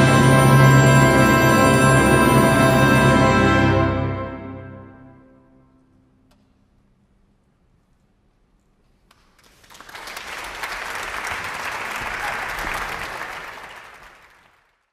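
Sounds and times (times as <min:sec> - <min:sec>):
audience applauding: 0:09.2 - 0:14.9.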